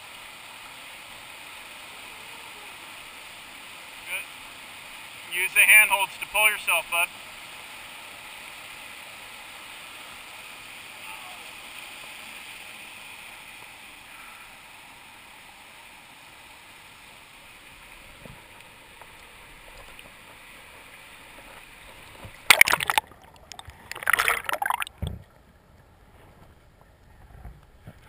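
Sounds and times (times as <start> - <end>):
water splashing at microphone: 21.4 - 25.3.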